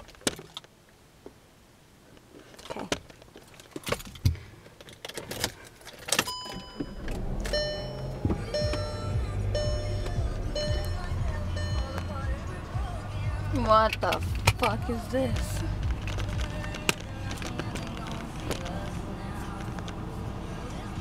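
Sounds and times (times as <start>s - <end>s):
car engine rumble: 0.0s - 21.0s
clicks and knocks in car: 2.8s - 10.9s, 13.8s - 19.0s
car radio music: 6.0s - 21.0s.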